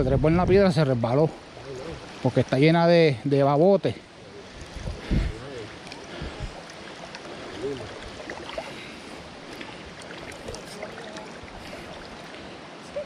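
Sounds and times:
stream rushing: 0.0 - 13.0
water splashing around legs: 4.5 - 13.0.

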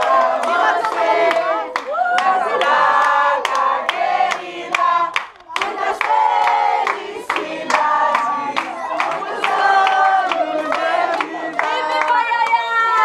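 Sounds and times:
group singing together: 0.0 - 13.0
people clapping along: 0.0 - 13.0.

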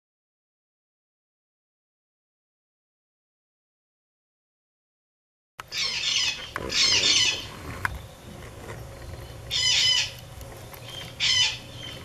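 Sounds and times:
parrot squawking: 5.7 - 7.5, 9.5 - 10.2, 10.8 - 12.0.

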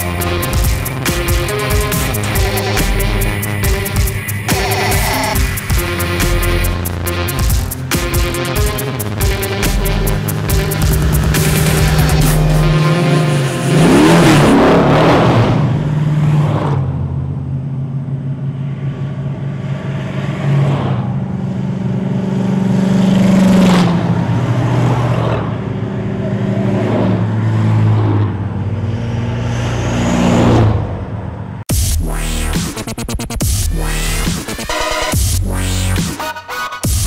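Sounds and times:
cars passing on highway: 0.0 - 31.7.

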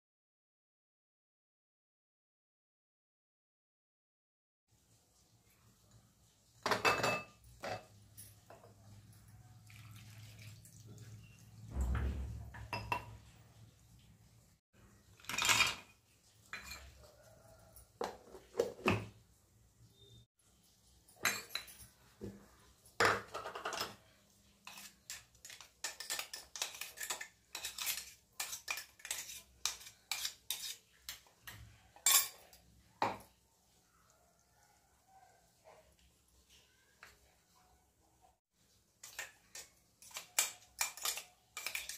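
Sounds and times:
steel bowls and utensils clinking: 6.6 - 13.6, 15.0 - 19.2, 21.0 - 33.4, 39.0 - 41.9
low thump: 11.7 - 12.6.

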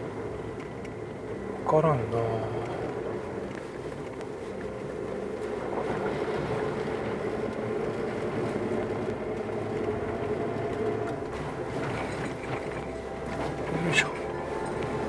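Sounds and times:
car engine running: 0.0 - 15.0
tyre and road noise: 0.0 - 15.0.

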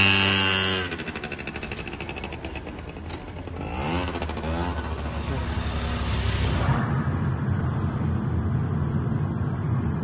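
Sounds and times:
small engine revving: 0.0 - 6.6.

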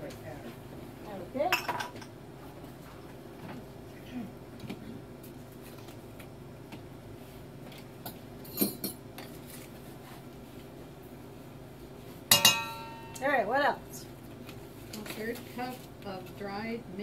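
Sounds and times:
loud metallic clink with ringing: 12.3 - 13.2.

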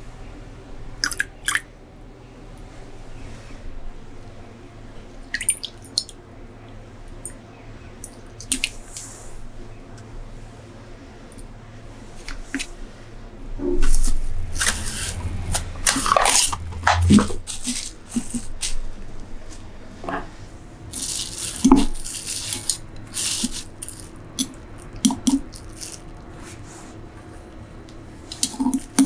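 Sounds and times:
cling film crinkling: 13.9 - 19.7, 20.9 - 26.4.

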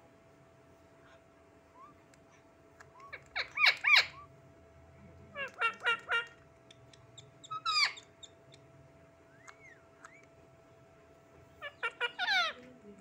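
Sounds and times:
faint steady hum: 0.0 - 13.0
parakeet chirps: 2.8 - 4.3, 5.3 - 8.7, 9.3 - 10.3, 11.6 - 12.6
parakeet squawking: 3.0 - 4.3, 5.3 - 8.6, 11.6 - 12.6.

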